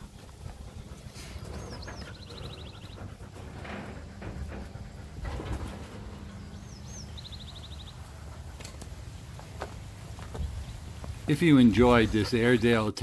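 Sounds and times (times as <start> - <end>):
small bird calling: 0.0 - 3.6, 6.2 - 9.3.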